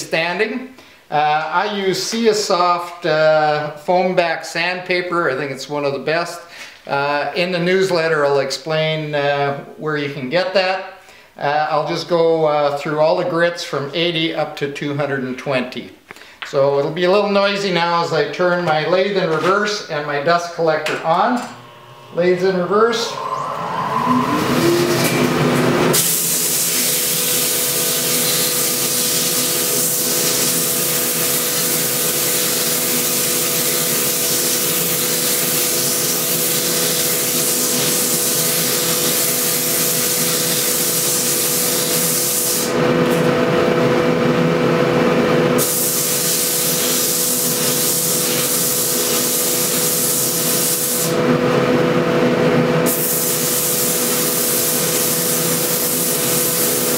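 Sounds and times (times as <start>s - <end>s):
wood lathe humming: 21.4s - 26.0s
sandpaper hissing on spinning wood: 25.9s - 42.7s, 45.6s - 51.1s, 52.9s - 56.9s.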